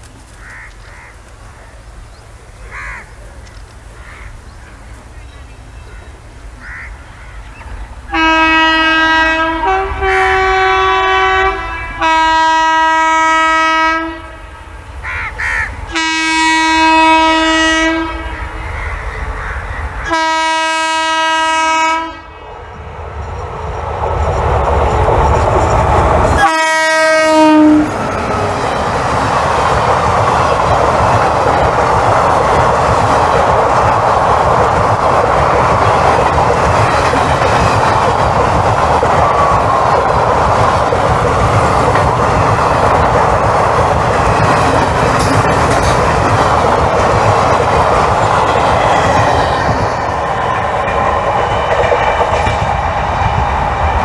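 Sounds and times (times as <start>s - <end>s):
locomotive horn blasts: 8.1s - 14.5s, 15.9s - 18.4s, 20.1s - 22.3s, 26.4s - 28.0s
train wheels clattering on track: 23.1s - 54.0s.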